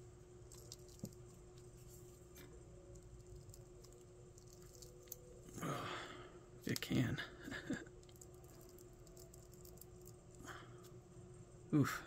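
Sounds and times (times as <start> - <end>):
dried peel crackling: 0.4 - 5.7, 7.8 - 11.0.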